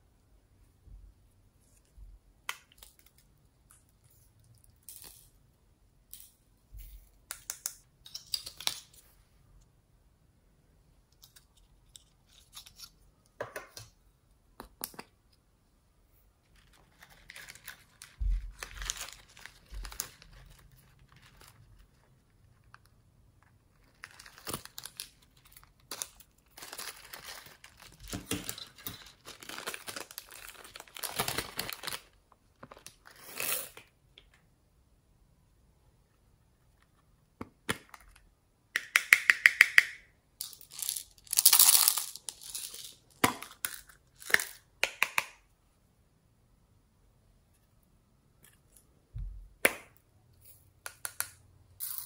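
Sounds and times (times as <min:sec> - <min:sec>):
paper and plastic crinkling: 0:16.5 - 0:22.2, 0:23.8 - 0:33.2.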